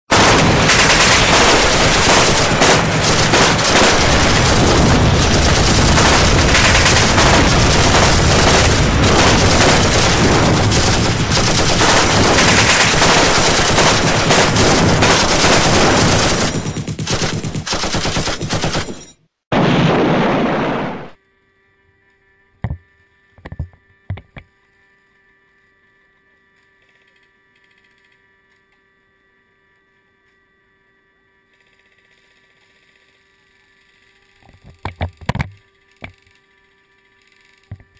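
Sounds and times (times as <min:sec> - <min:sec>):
automatic gunfire: 0:00.1 - 0:19.1.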